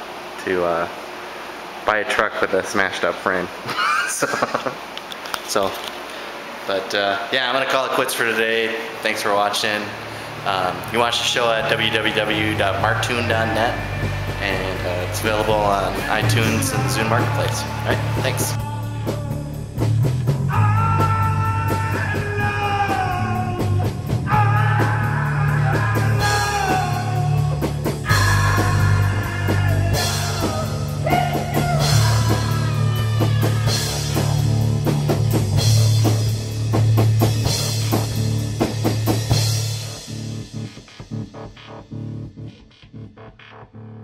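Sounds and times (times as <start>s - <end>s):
steady bass: 9.8s - 44.0s
drum kit: 10.4s - 43.5s
rock music: 10.4s - 44.0s.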